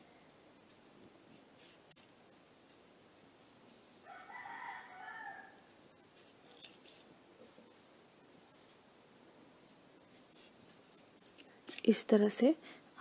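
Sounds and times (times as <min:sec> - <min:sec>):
rooster crowing: 0:04.0 - 0:05.7.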